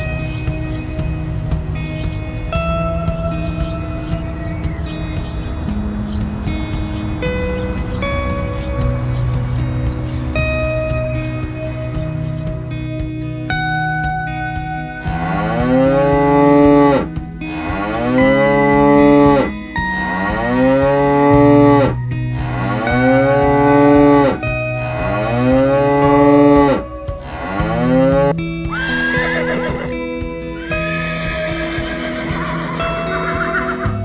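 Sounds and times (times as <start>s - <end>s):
cows mooing: 15.0s - 30.0s, 30.6s - 34.0s
horse whinnying: 26.0s - 30.0s, 30.6s - 34.0s.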